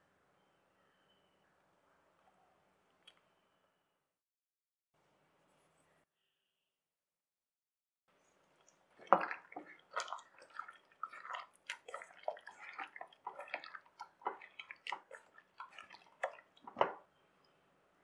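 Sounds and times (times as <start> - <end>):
hand squishing wet marinade: 8.4 - 17.5.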